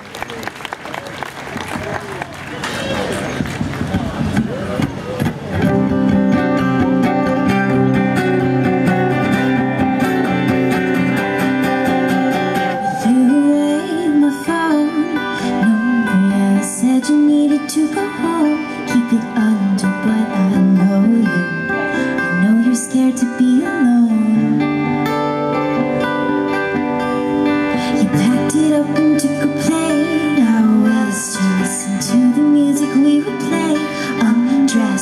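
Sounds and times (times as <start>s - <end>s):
acoustic guitars strumming: 2.7s - 35.0s
woman singing: 12.6s - 24.7s, 27.8s - 35.0s.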